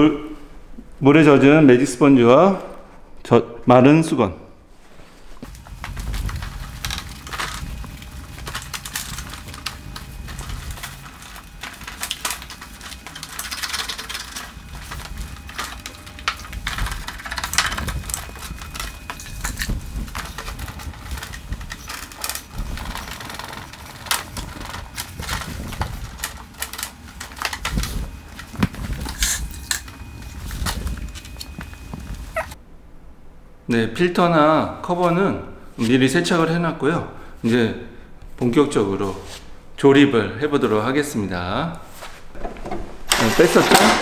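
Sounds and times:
sponge scrubbing plastic: 4.7s - 32.6s.

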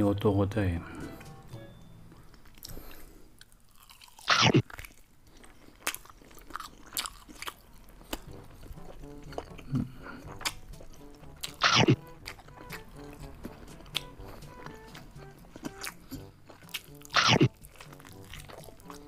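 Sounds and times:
soft background music: 0.0s - 3.0s, 6.6s - 19.0s
chewing chicken close up: 2.3s - 19.0s
loud bite into chicken: 11.4s - 12.8s.

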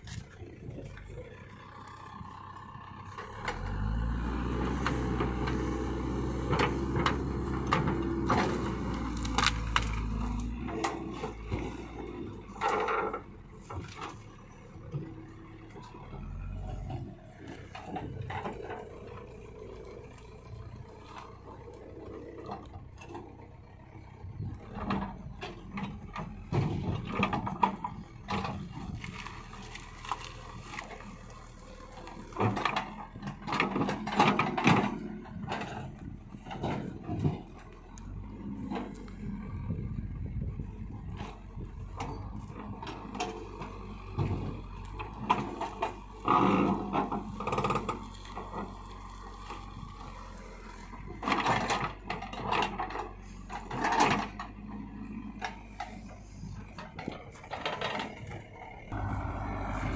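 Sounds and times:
diesel engine running: 0.0s - 59.9s
wood clicks and cracks: 6.5s - 15.0s, 24.5s - 39.2s.

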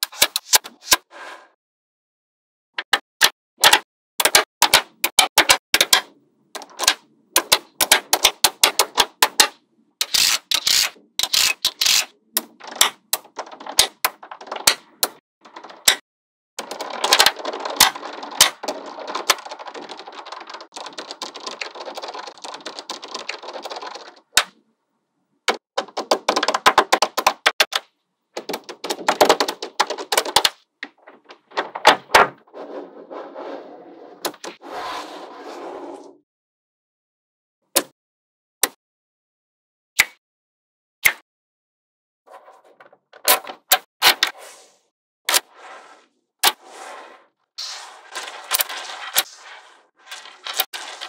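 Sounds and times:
balls rolling and rattling: 16.6s - 24.4s, 25.5s - 34.6s, 42.3s - 43.8s, 45.5s - 51.0s.

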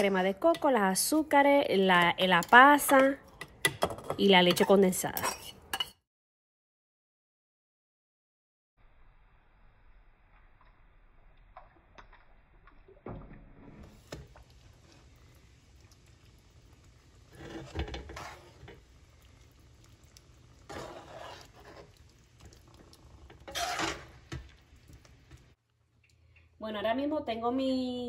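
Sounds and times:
metal spoon scraping rice pot: 4.5s - 5.9s, 20.7s - 22.0s, 23.4s - 24.2s.

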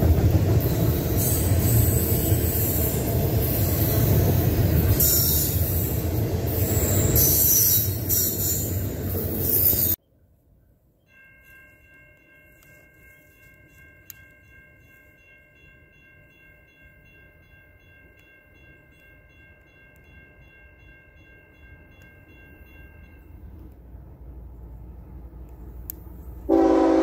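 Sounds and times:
distant locomotive horn: 26.4s - 27.0s.

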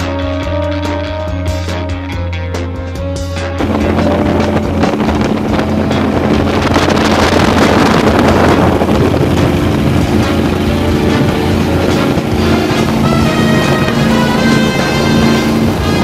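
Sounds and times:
motorboat engine: 0.0s - 16.0s
water spray rushing: 3.6s - 16.0s
wind buffeting microphone: 3.6s - 16.0s.

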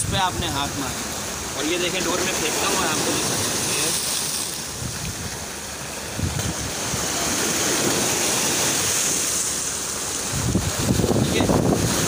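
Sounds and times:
surf breaking over rocks: 0.0s - 12.0s
wind on microphone: 4.6s - 9.4s, 10.2s - 12.0s.

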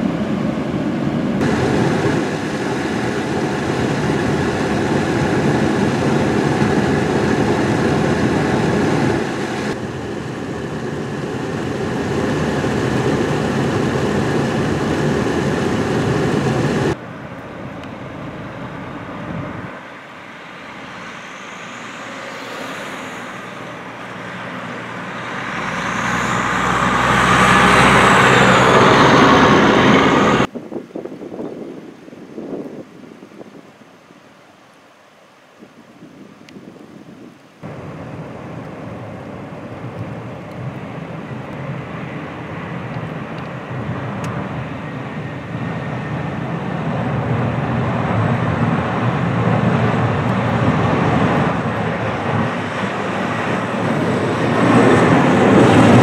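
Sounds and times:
passing vehicle with high whine: 0.0s - 30.5s, 37.6s - 56.0s
traffic noise: 0.0s - 30.6s, 37.5s - 56.0s
wind: 0.0s - 56.0s.

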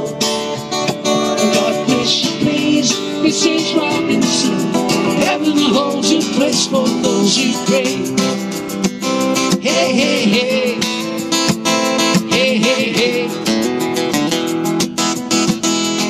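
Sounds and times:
acoustic guitars strumming: 0.0s - 16.0s
man singing: 1.1s - 8.5s, 9.4s - 11.3s, 12.0s - 13.7s.

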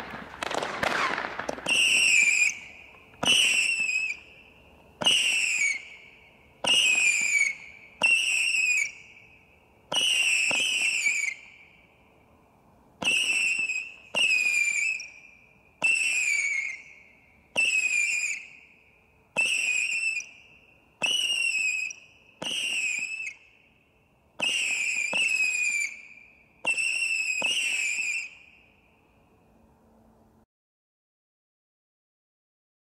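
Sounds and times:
firework launch pops: 0.0s - 4.1s
shrill firework whistle: 0.0s - 12.0s, 13.0s - 23.8s, 24.4s - 29.0s.

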